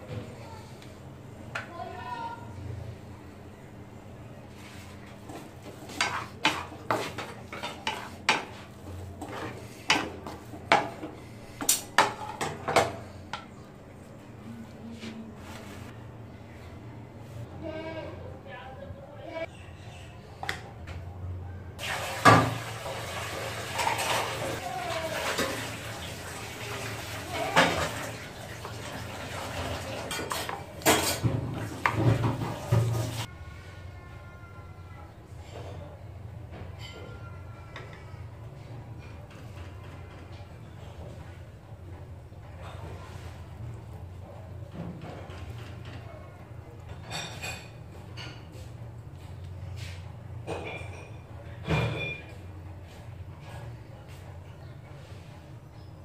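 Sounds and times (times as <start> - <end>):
spatula scraping a metal pan: 5.8 - 11.0
water pouring: 21.8 - 30.2.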